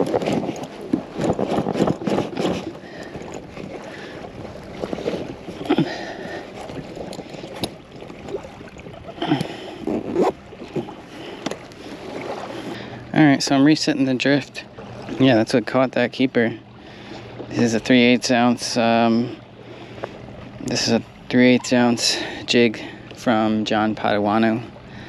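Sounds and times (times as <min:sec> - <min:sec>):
cooler bag rustling and knocking: 0:00.0 - 0:02.7
water against kayak hull: 0:00.0 - 0:25.0.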